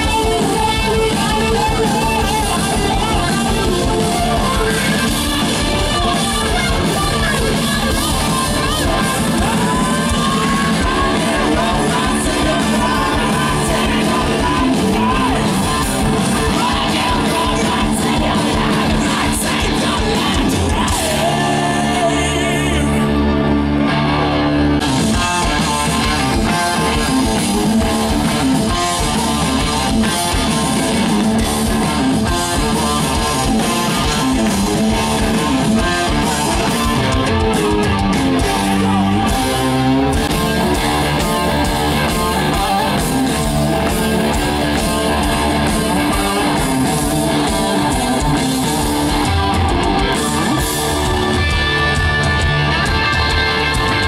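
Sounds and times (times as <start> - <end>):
man singing: 0.0 - 23.4
bass guitar: 0.0 - 54.0
distorted electric guitars: 0.0 - 54.0
drums: 0.0 - 54.0.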